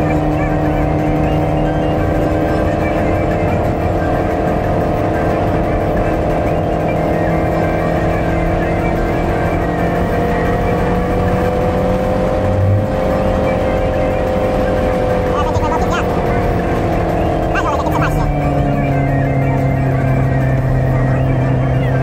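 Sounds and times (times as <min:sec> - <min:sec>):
car engine and tyre hum: 0:00.0 - 0:22.0.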